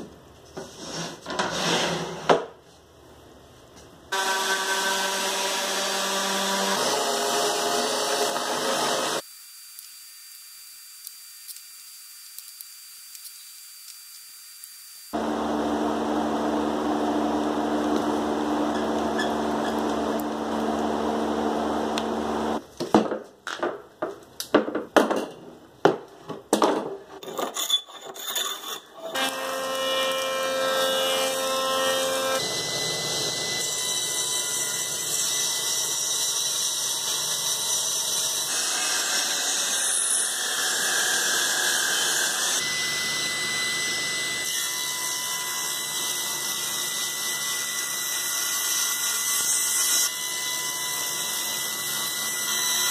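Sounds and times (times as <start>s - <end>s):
table saw cutting board: 0.6s - 2.5s, 4.1s - 9.3s, 13.8s - 22.6s, 28.7s - 52.9s
jointer running: 15.2s - 22.6s.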